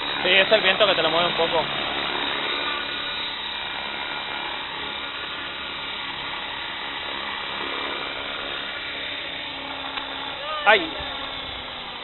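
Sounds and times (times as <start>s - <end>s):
rc helicopter motor whine: 0.0s - 12.0s
rotor whirring: 0.0s - 12.0s.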